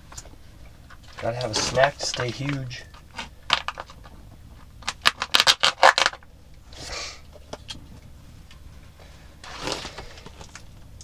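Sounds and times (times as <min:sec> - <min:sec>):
plastic wrapper crinkling: 0:00.9 - 0:04.2, 0:04.8 - 0:06.3.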